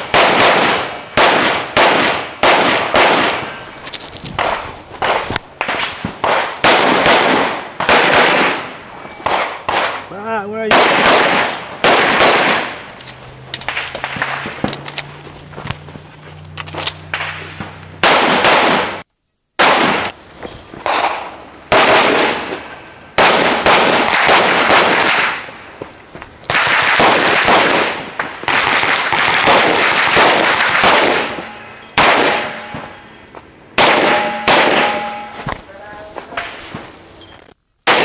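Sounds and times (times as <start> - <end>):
pistol shots echoing: 0.0 - 3.6, 4.4 - 12.9, 17.1 - 19.0, 19.6 - 20.2, 20.8 - 25.5, 26.5 - 33.2, 33.8 - 35.4.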